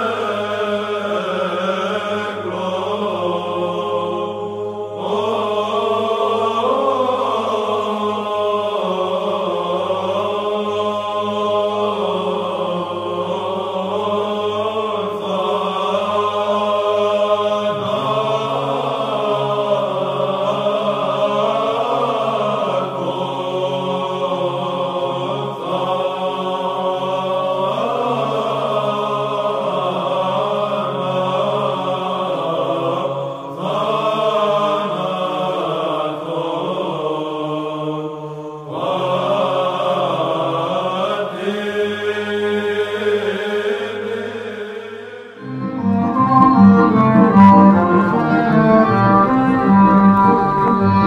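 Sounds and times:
voices chanting long notes: 0.0s - 51.0s
instrumental music with quick beat: 45.6s - 51.0s.

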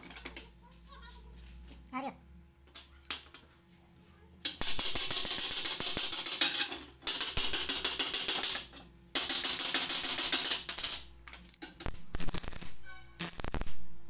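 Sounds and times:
welding arc crackling: 4.6s - 6.3s, 11.8s - 13.9s.

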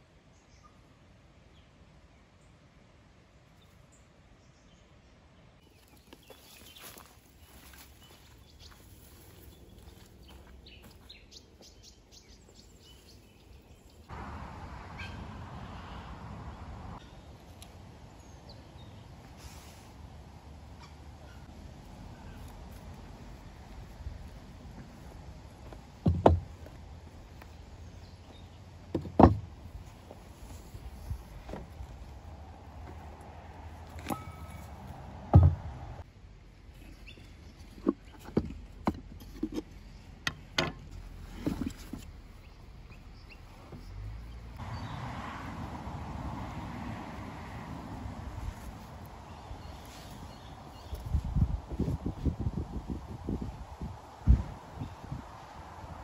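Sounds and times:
low wind rumble: 13.6s - 36.7s, 42.1s - 56.0s
heavy wooden thump: 26.0s - 26.8s, 28.9s - 29.6s, 35.2s - 36.0s
wooden knocks and clacks: 26.0s - 26.8s, 28.9s - 29.5s.

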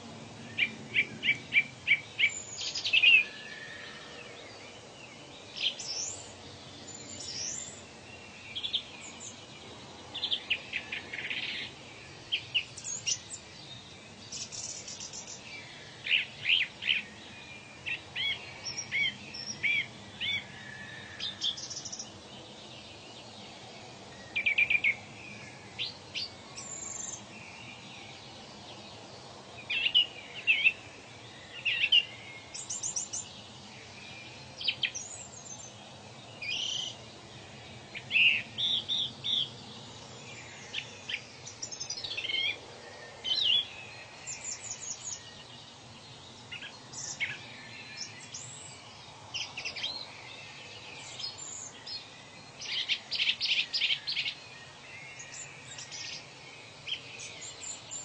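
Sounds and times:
birds chirping and calling: 0.0s - 4.4s, 17.8s - 22.5s, 29.6s - 58.0s
faint steady hiss: 0.0s - 58.0s.

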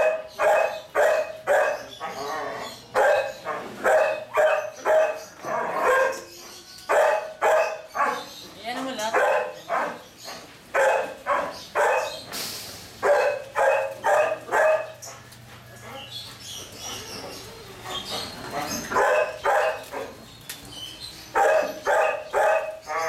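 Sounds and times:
puppies barking: 0.0s - 23.0s.

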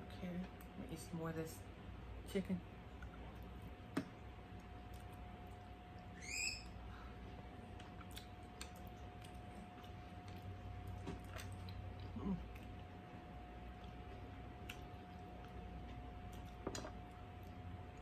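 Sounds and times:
fan hum: 0.0s - 18.0s
faint chewing: 2.9s - 6.2s, 7.1s - 18.0s
high rising chirps: 6.2s - 6.8s.

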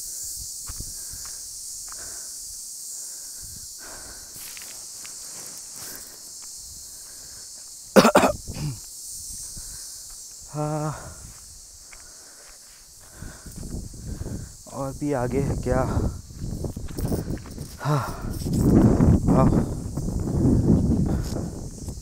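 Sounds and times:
steady high hiss: 0.0s - 22.0s
faint footsteps: 0.6s - 2.2s, 3.8s - 7.9s, 8.8s - 14.7s, 15.5s - 22.0s
loud cough: 7.9s - 8.8s.

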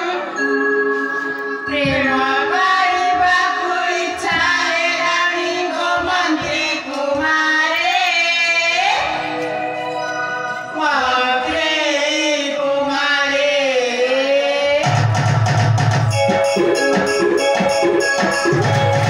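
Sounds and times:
instrumental accompaniment: 0.0s - 7.2s, 9.0s - 12.0s, 14.9s - 19.0s
drum beats: 1.7s - 7.5s, 14.8s - 19.0s.

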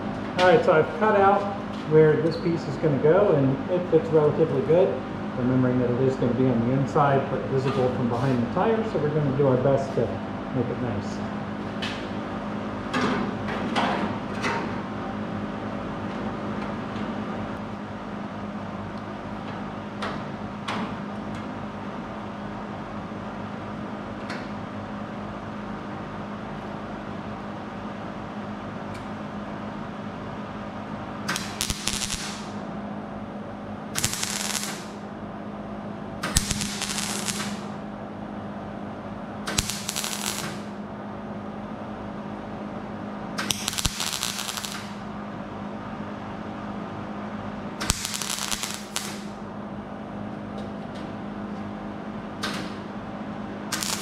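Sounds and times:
steady background hum: 0.0s - 54.0s
short welding bursts: 31.3s - 32.6s, 34.0s - 35.0s, 36.3s - 37.7s, 39.5s - 40.8s, 43.5s - 45.0s, 47.8s - 49.4s, 53.7s - 54.0s.

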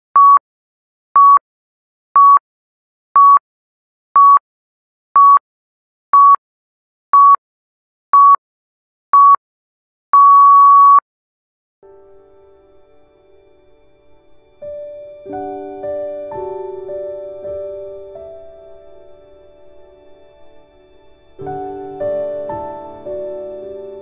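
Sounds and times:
timer beeps: 0.2s - 0.4s, 1.2s - 1.4s, 2.2s - 2.4s, 3.2s - 3.4s, 4.2s - 4.4s, 5.2s - 5.4s, 6.2s - 6.4s, 7.2s - 7.4s, 8.2s - 8.4s, 9.2s - 9.4s, 10.2s - 11.0s
soft music: 11.8s - 24.0s.

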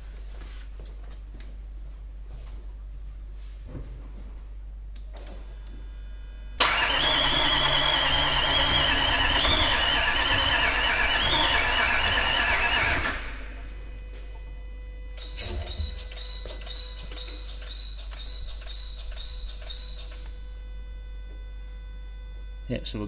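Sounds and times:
high wavering whine: 5.9s - 23.0s
engine cranking on starter: 6.6s - 13.6s.

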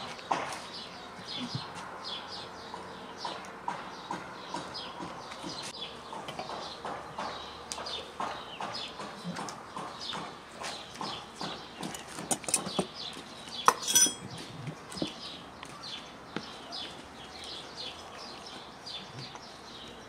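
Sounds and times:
birds chirping: 0.0s - 20.0s
knocks and clinks against glass jar: 13.6s - 14.3s.

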